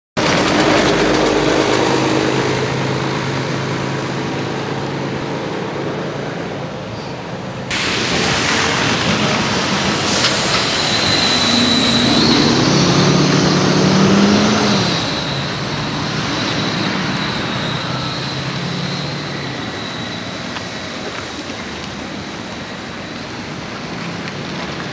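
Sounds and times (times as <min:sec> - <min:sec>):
buses and cars passing: 0:00.2 - 0:24.9
tyres on slushy road: 0:00.2 - 0:24.9.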